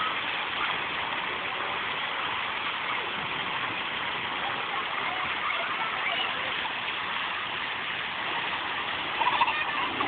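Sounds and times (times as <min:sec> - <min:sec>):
fountain jets splashing on pavement: 0:00.0 - 0:10.0
children's voices: 0:04.4 - 0:06.8, 0:09.0 - 0:10.0.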